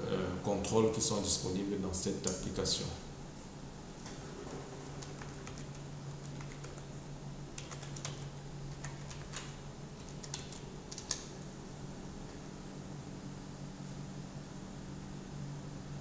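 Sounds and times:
low steady hum: 0:00.0 - 0:16.0
keyboard keystrokes: 0:04.9 - 0:06.9, 0:07.6 - 0:11.3.

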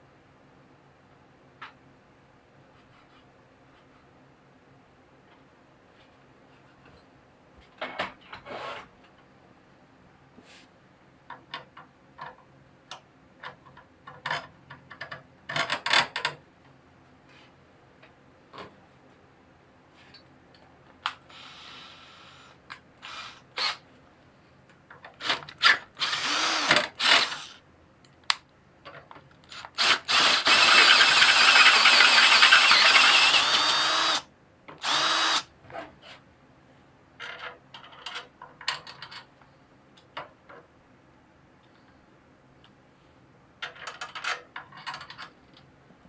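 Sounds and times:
drill boring through steel: 0:26.0 - 0:27.6, 0:29.8 - 0:34.2, 0:34.8 - 0:35.5.

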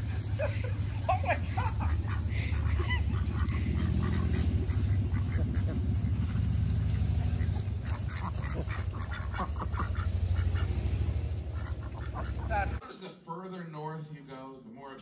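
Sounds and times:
low rumble: 0:00.0 - 0:12.8
hens squawking and clucking: 0:00.0 - 0:13.1.

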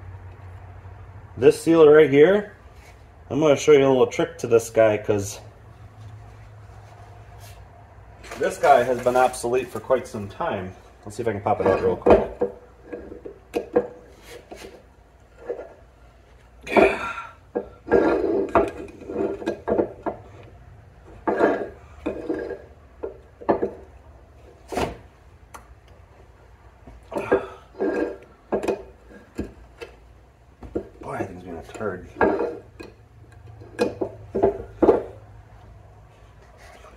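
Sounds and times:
metal tool scraping and clanking: 0:11.4 - 0:15.9, 0:17.6 - 0:20.5, 0:21.1 - 0:22.8, 0:27.2 - 0:29.6, 0:31.0 - 0:35.2.

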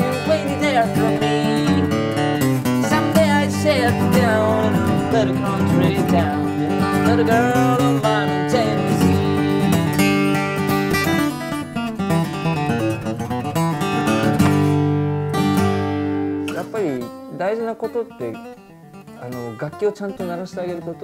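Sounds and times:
man singing: 0:00.0 - 0:02.0, 0:02.6 - 0:10.2
acoustic guitar strumming: 0:00.0 - 0:21.0.

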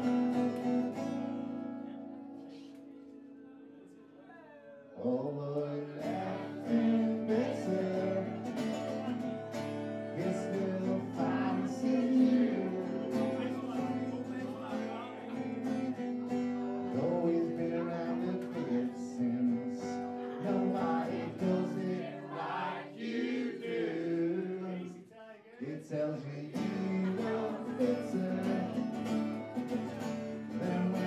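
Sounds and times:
acoustic guitar strumming: 0:00.0 - 0:02.4, 0:05.0 - 0:23.0, 0:25.9 - 0:31.0
man singing into microphone: 0:04.8 - 0:08.6, 0:10.0 - 0:13.5, 0:16.8 - 0:22.3, 0:23.9 - 0:25.0, 0:25.6 - 0:29.2, 0:30.5 - 0:31.0.

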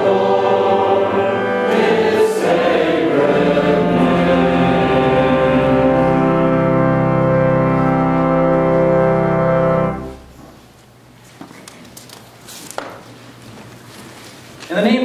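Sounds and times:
organ holding final chord: 0:00.0 - 0:10.7.

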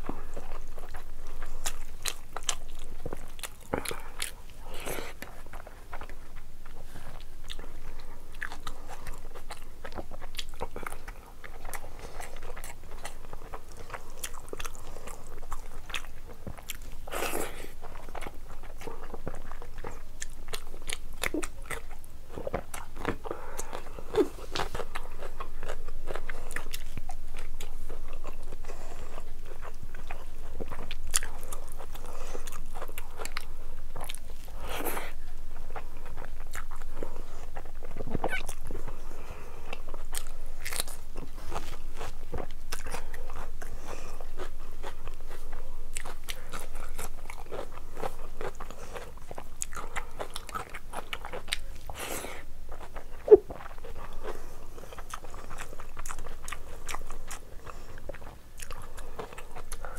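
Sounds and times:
close chewing: 0:00.0 - 0:59.9
food crunches: 0:39.7 - 0:43.8.

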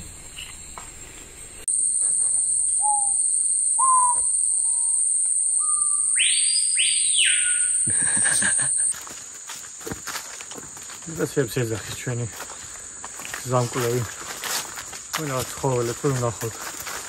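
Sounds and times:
high-pitched insect drone: 0:00.0 - 0:17.0
birds whistling: 0:02.8 - 0:08.2
loud swooping bird calls: 0:03.8 - 0:05.0, 0:05.6 - 0:07.9.

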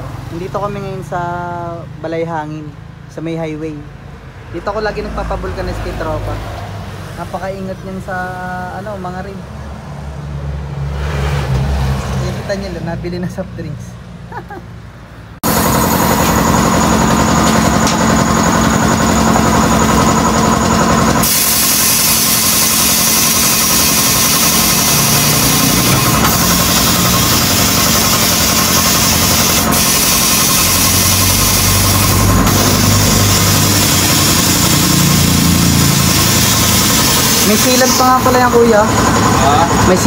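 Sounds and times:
motor-driven machine humming: 0:15.4 - 0:39.9.

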